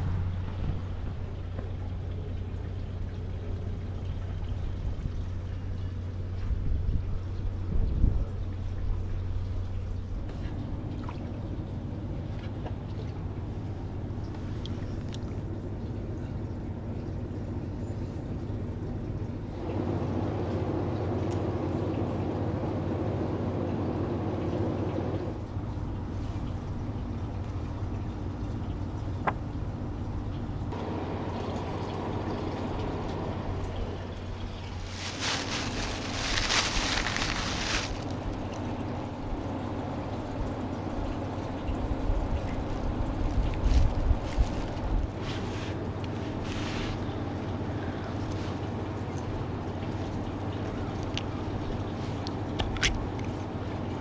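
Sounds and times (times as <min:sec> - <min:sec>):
steady low hum: 0:00.0 - 0:54.0
water trickling and lapping: 0:00.0 - 0:54.0
plastic bag rustling: 0:34.6 - 0:38.4, 0:43.6 - 0:47.0.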